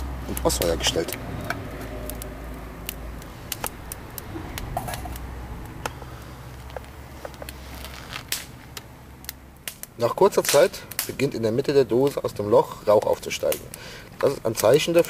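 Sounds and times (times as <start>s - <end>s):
kindling crackling and popping: 0.0s - 15.0s
low rumble: 1.1s - 8.6s.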